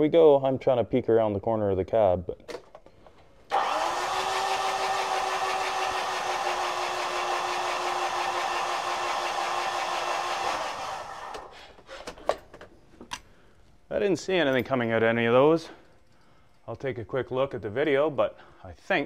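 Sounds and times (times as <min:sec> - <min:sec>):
starter motor cranking engine: 0:03.5 - 0:11.6.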